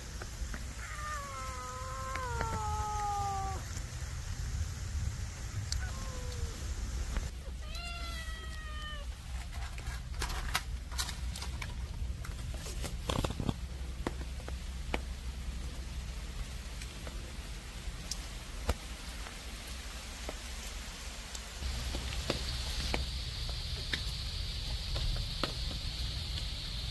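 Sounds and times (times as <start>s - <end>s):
steady low rumble: 0.0s - 26.9s
cat meowing: 0.8s - 3.7s, 5.7s - 6.7s, 7.4s - 9.2s.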